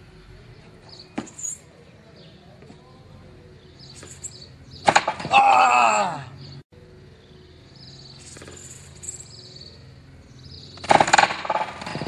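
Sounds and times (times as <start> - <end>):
high chirps: 3.4 - 5.0, 6.3 - 11.0.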